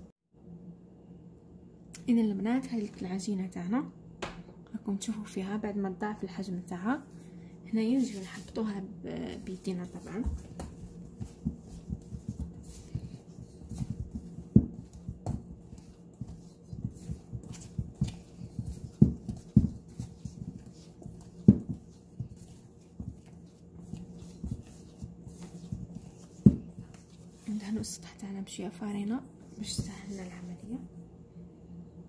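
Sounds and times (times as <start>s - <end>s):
hands kneading dough: 6.8s - 28.4s, 29.4s - 30.8s.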